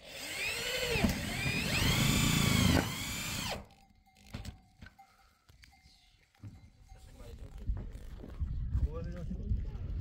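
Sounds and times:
drill bit grinding metal: 0:00.0 - 0:03.8
electric drill motor whine: 0:00.0 - 0:03.8.

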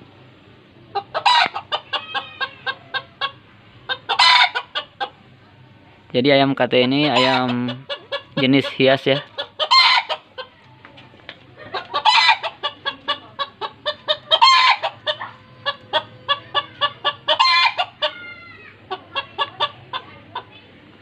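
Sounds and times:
harsh chicken calls: 0:00.9 - 0:05.2, 0:06.9 - 0:10.5, 0:11.7 - 0:20.2
chickens clucking rapidly: 0:00.9 - 0:05.3, 0:06.8 - 0:20.6.

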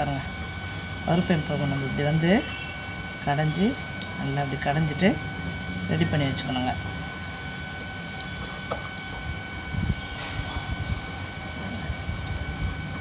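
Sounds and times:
steady background hum: 0:00.0 - 0:13.0
wet mashing thuds and stirring: 0:08.1 - 0:11.2.

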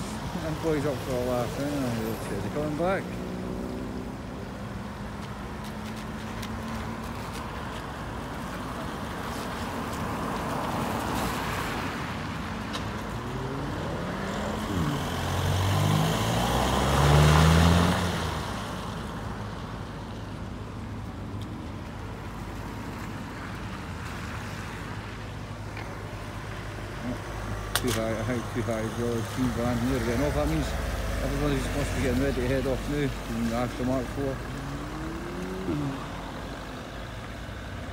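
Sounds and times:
tyres hissing on wet road: 0:00.0 - 0:04.3, 0:06.8 - 0:19.7, 0:26.0 - 0:37.9
background traffic rumble: 0:00.0 - 0:37.9
car engine revving: 0:01.4 - 0:04.4, 0:29.7 - 0:36.8.

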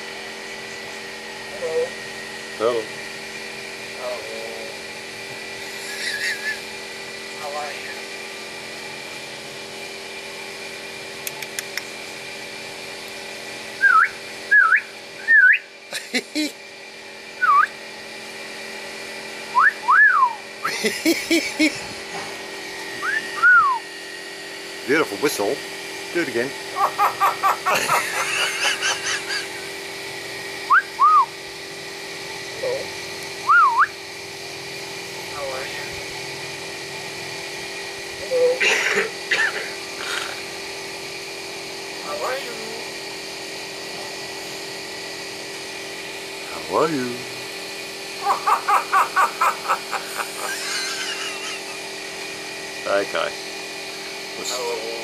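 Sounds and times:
mechanical hum: 0:00.0 - 0:55.0
myna bird whistling: 0:13.8 - 0:15.7, 0:17.4 - 0:17.8, 0:19.5 - 0:20.4, 0:23.0 - 0:23.9, 0:30.7 - 0:31.3, 0:33.4 - 0:34.0.

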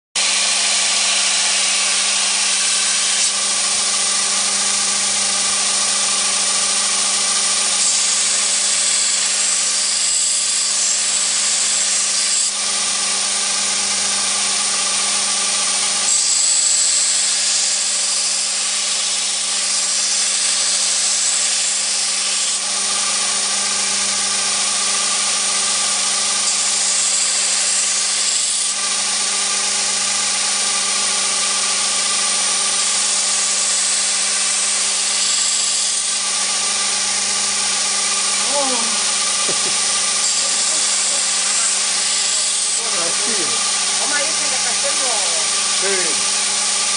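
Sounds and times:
belt grinder motor hum: 0:00.2 - 0:46.9
knife blade grinding hiss: 0:38.5 - 0:43.6.

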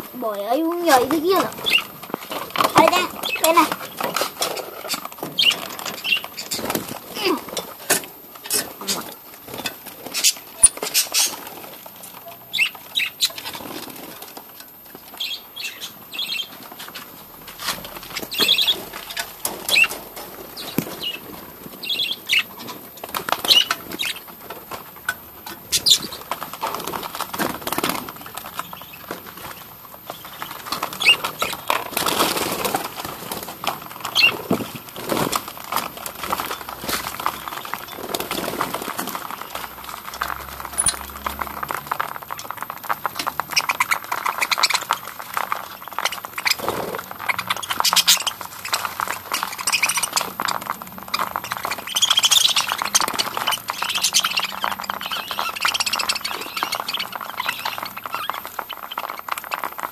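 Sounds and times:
wings fluttering: 0:00.0 - 0:59.9
budgerigars chirping: 0:00.8 - 0:07.0, 0:10.0 - 0:11.4, 0:12.4 - 0:13.6, 0:15.2 - 0:16.5, 0:18.2 - 0:20.0, 0:21.8 - 0:22.6, 0:23.3 - 0:24.2, 0:25.7 - 0:26.6, 0:30.1 - 0:32.9, 0:34.0 - 0:34.5, 0:40.7 - 0:41.0, 0:43.5 - 0:59.7.

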